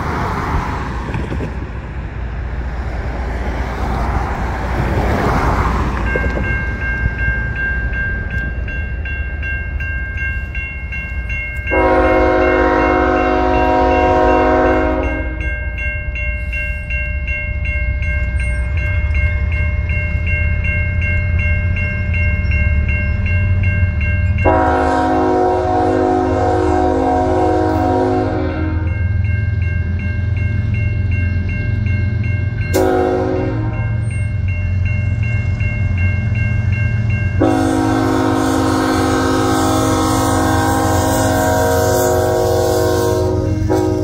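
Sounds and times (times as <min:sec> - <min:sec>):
level crossing warning bell: 0:05.2 - 0:44.0
locomotive air horn blast: 0:11.7 - 0:15.4, 0:24.5 - 0:28.9, 0:32.7 - 0:33.9, 0:37.4 - 0:44.0.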